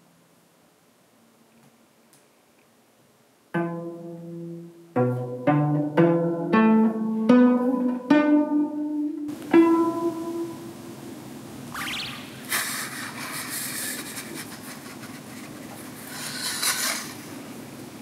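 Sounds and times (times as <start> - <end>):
cello plucked melody: 3.5 - 11.0.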